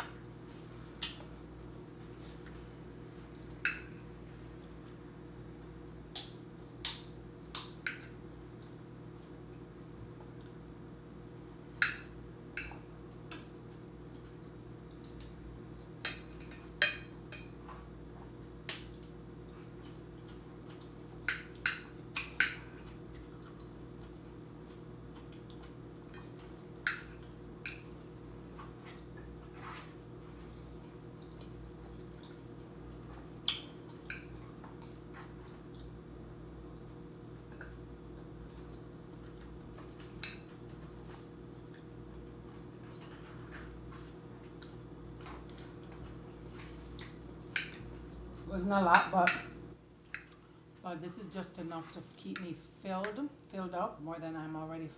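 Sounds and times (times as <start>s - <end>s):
steady low hum: 0.0s - 54.9s
wet chewing sounds: 17.6s - 36.0s, 36.6s - 48.5s.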